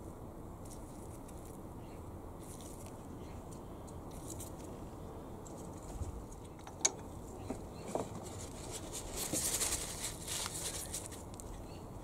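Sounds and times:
paper tissue rustling: 8.1s - 11.3s.

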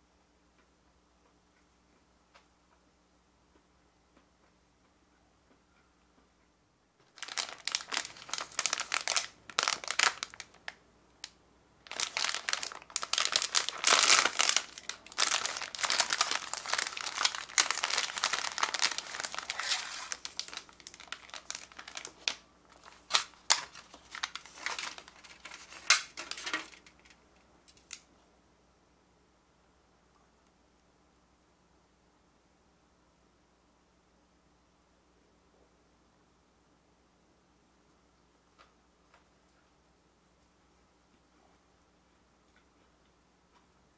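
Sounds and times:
plastic wrapper crinkling: 7.0s - 28.0s.

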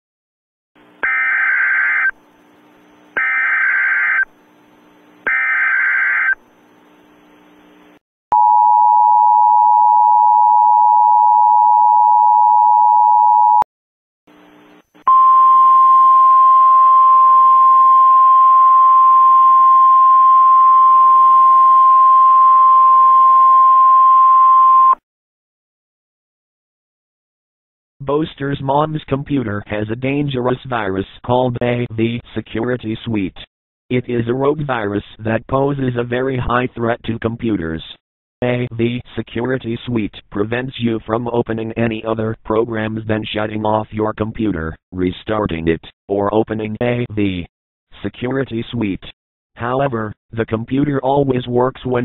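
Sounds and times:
screechy digital alert bursts: 1.0s - 2.2s, 3.2s - 4.3s, 5.3s - 6.4s
single steady tone: 8.3s - 13.7s.

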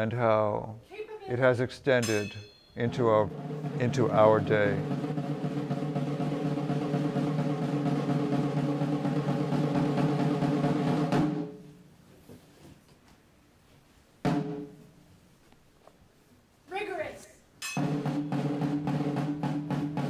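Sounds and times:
drum stroke with short ring: 2.0s - 3.9s, 17.6s - 17.9s
snare drum roll: 2.8s - 11.6s, 17.8s - 20.0s.

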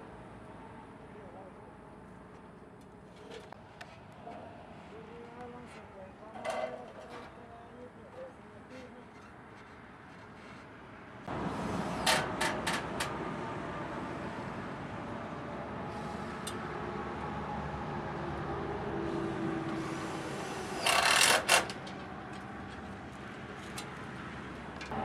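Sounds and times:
screw gun driving into metal: 20.8s - 21.8s.

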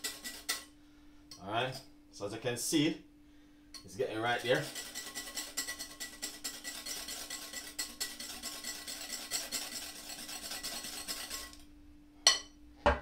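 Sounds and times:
whisk scraping in glass bowl: 0.0s - 0.7s, 3.8s - 11.6s.

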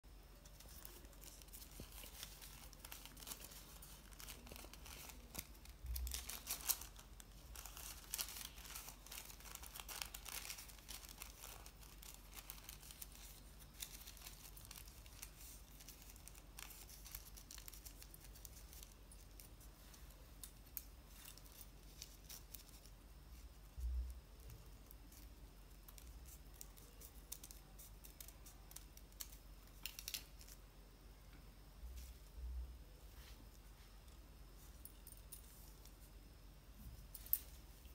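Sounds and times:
paper crinkling and rustling: 0.4s - 30.6s.

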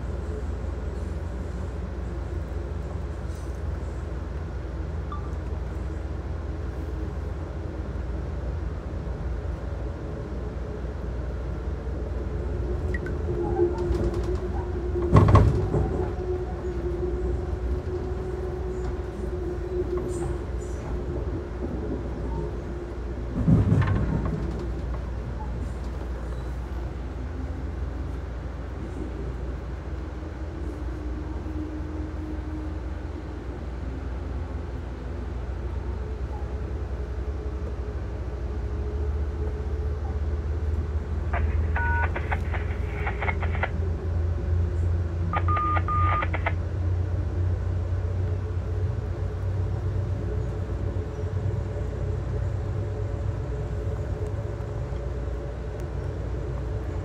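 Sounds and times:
train ride rumble: 0.0s - 57.0s
electronic beeps: 41.4s - 43.6s, 45.4s - 46.5s.

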